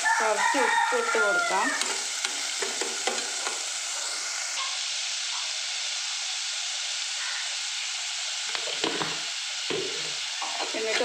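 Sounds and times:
greens frying in oil: 0.0s - 11.0s.

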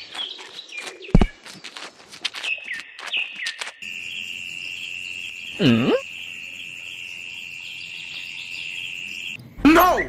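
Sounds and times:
insect trilling: 3.0s - 9.4s
voice-like call: 5.6s - 6.1s.

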